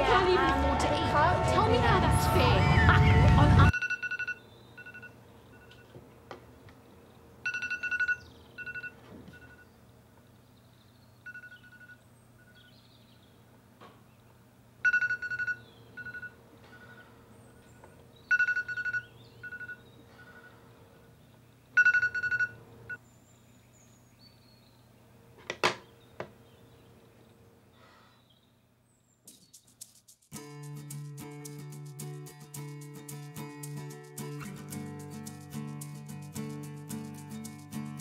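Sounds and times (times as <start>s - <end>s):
phone alarm chirping: 2.7s - 5.9s, 7.4s - 9.7s, 11.2s - 12.7s, 14.8s - 17.1s, 18.3s - 20.6s, 21.8s - 23.0s.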